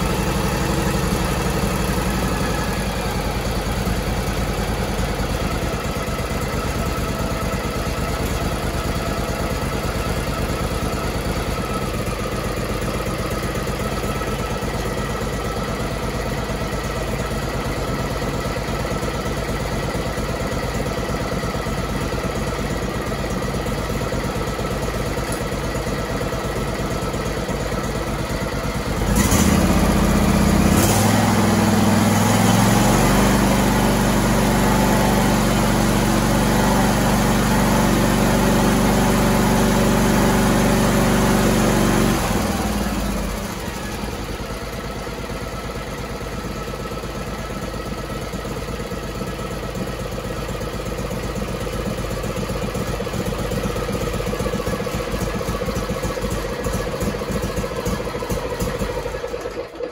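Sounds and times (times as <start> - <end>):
engine idling and revving: 0.0 - 59.9.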